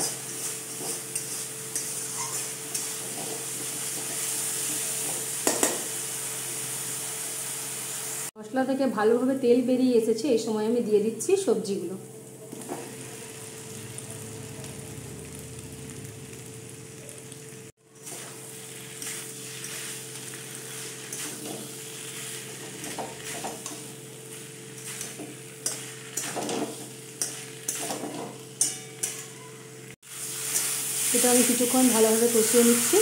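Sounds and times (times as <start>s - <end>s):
spatula scraping metal wok: 0.0s - 5.7s, 17.9s - 33.0s
vegetables sizzling in oil: 0.0s - 8.3s, 11.4s - 33.0s.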